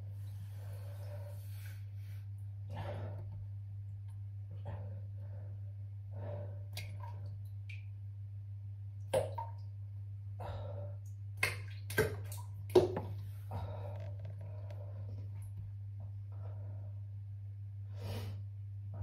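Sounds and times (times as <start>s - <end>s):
steady low hum: 0.0s - 19.0s
drips plopping into toilet water: 6.7s - 8.0s, 9.0s - 9.8s, 11.0s - 13.2s.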